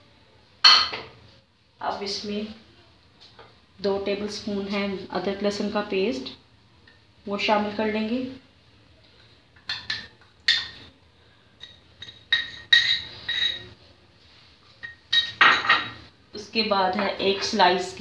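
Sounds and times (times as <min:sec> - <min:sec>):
spoon clinking in glass jar: 0:11.6 - 0:13.7.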